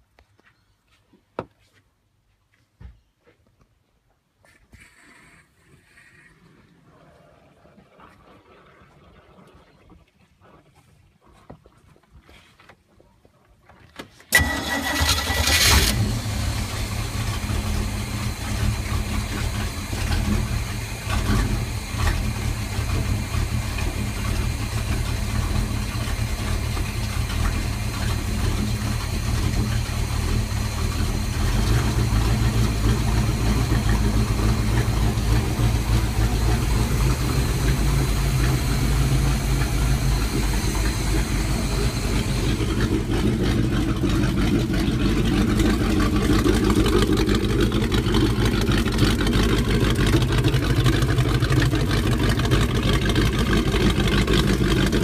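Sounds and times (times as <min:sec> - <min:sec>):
boat engine starting and idling: 0:13.8 - 0:55.0.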